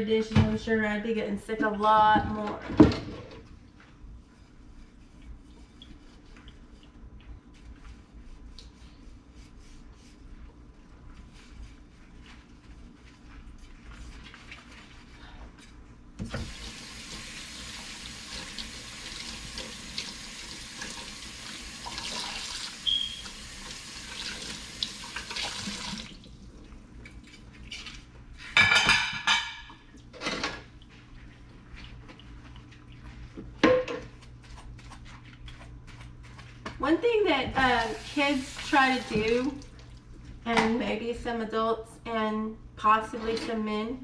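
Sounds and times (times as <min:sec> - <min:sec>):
dishes clattering in sink: 0:28.5 - 0:30.7, 0:33.6 - 0:34.1.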